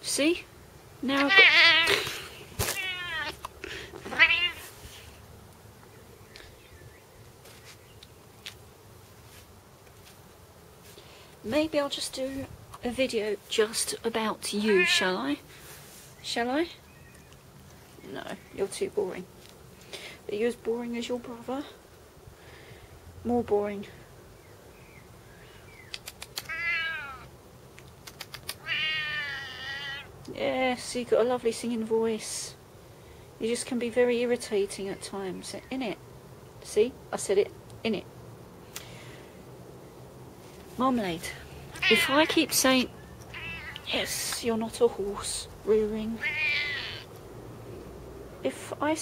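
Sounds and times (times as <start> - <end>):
cat meowing: 1.2 - 2.0, 2.6 - 3.4, 4.0 - 4.7, 14.6 - 15.2, 26.4 - 27.3, 28.6 - 30.1, 41.8 - 42.4, 43.3 - 43.9, 46.2 - 47.1
sharp clicks: 25.9 - 26.5, 27.8 - 28.6.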